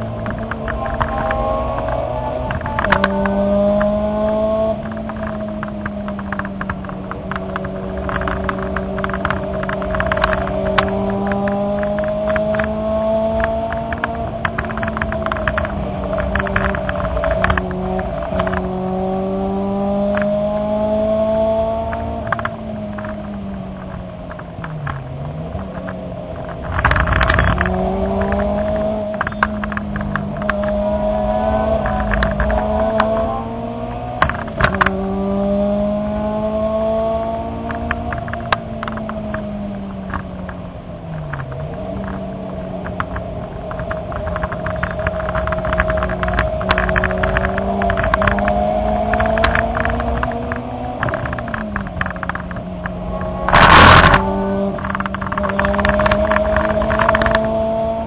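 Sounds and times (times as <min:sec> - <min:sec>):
clicks and rattles: 0:00.0 - 0:18.7, 0:21.8 - 0:35.1, 0:41.2 - 0:57.8
car engine droning: 0:00.0 - 0:58.0
loud burst of rushing noise: 0:53.5 - 0:54.3.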